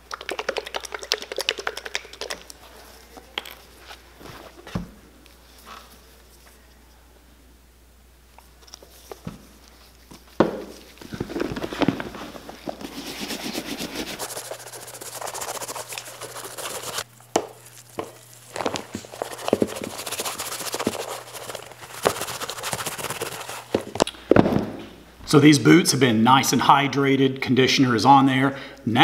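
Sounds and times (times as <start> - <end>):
scratchy rubbing on leather: 11.2 - 23.9.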